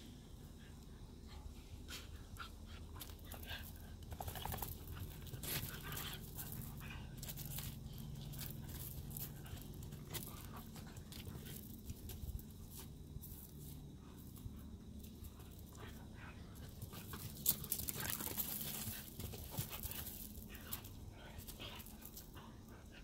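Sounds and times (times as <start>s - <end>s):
dog panting: 0.5s - 12.2s, 14.0s - 23.0s
paws scuffing on gravel: 5.3s - 13.8s, 16.6s - 22.4s.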